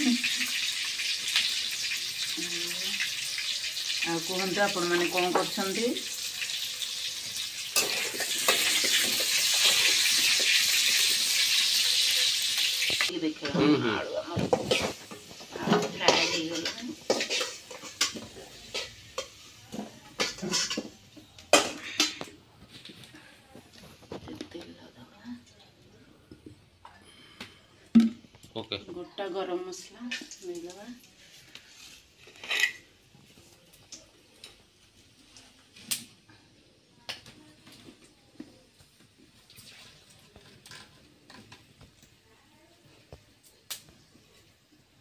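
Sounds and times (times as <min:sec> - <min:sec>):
wood fire crackling: 0:00.0 - 0:25.4, 0:33.0 - 0:36.2, 0:43.4 - 0:44.6
metal utensil clinking on pan: 0:14.5 - 0:19.4, 0:20.2 - 0:22.3
sharp pops from fire: 0:43.4 - 0:43.9.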